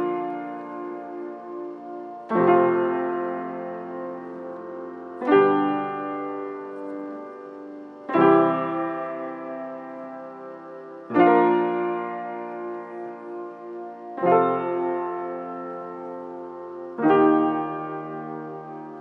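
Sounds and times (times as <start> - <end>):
piano chords ringing: 0.0 - 19.0.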